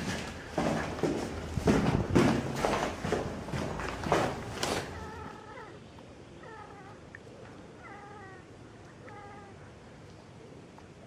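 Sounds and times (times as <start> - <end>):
cats meowing: 4.8 - 9.8.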